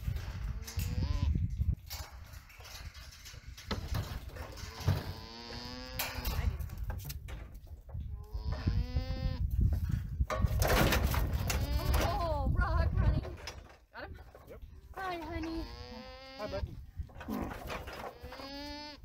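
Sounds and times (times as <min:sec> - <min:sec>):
alpaca humming: 0:15.4 - 0:16.7, 0:18.1 - 0:19.0.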